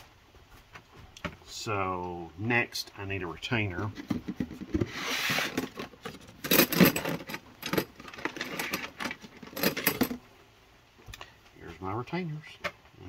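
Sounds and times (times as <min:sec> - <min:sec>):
small metal parts clinking: 0:05.5 - 0:10.2.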